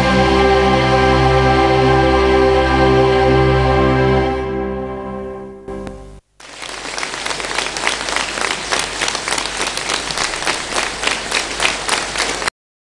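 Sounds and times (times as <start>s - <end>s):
large audience applauding: 6.4s - 12.5s.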